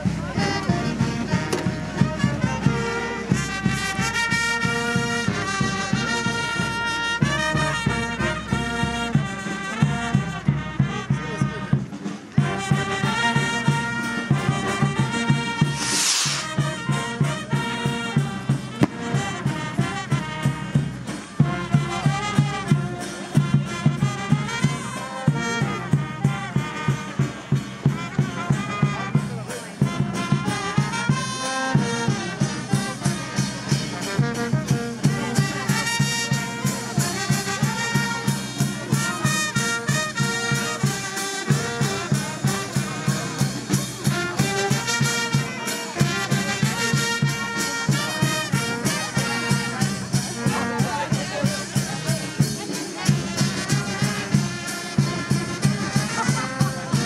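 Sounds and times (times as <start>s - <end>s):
brass band playing: 0.0s - 57.0s
steady drum beat: 0.0s - 57.0s
trumpets and trombones: 0.0s - 57.0s.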